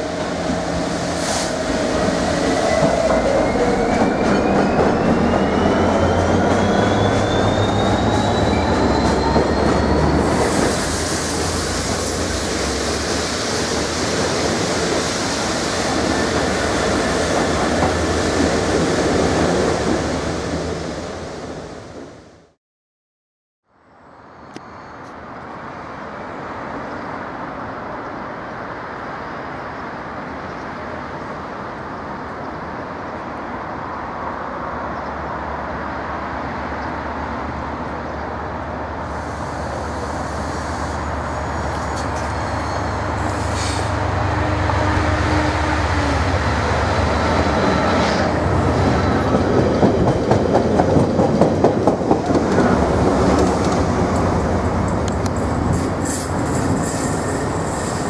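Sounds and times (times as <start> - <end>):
diesel locomotive engine: 0.0 - 21.8, 25.9 - 58.0
train wheel clatter: 49.0 - 58.0.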